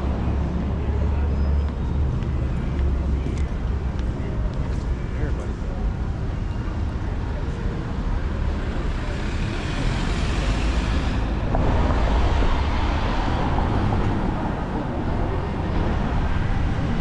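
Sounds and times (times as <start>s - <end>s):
cars driving past: 8.6s - 17.0s.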